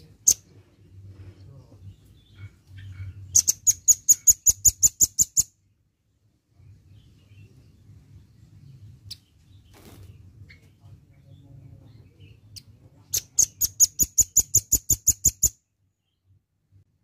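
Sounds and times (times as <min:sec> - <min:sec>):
faint bird chirps: 0:00.0 - 0:05.8, 0:06.6 - 0:16.4
bird trilling: 0:02.8 - 0:05.5, 0:13.1 - 0:15.6.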